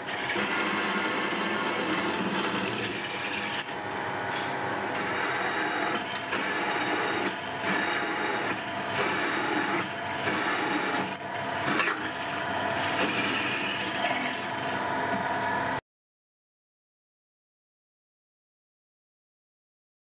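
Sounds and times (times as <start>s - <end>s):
drill cutting steel: 0.0s - 3.8s, 4.9s - 15.1s
milling machine spindle running: 0.0s - 15.8s.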